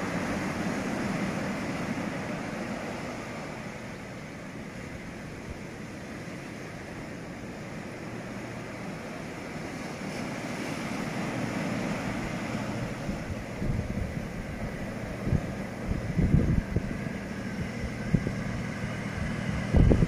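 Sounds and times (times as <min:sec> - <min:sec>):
train rushing noise: 0:00.0 - 0:20.0
wind buffeting microphone: 0:11.5 - 0:20.0.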